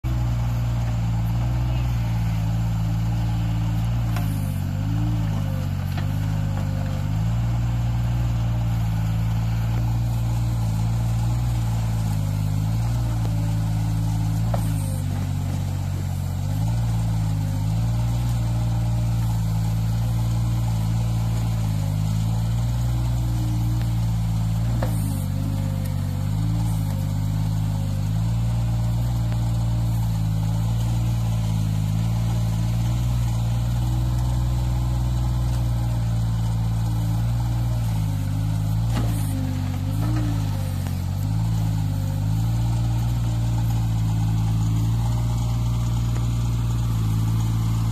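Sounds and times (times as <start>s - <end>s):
diesel excavator engine running: 0.0s - 47.9s.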